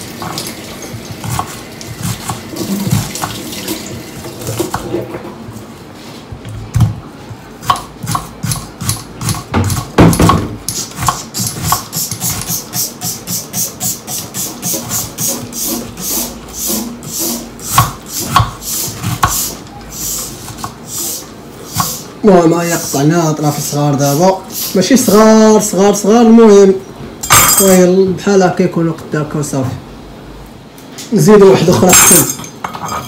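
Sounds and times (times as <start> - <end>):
knife slicing onion: 0.2 - 3.5, 6.7 - 24.8.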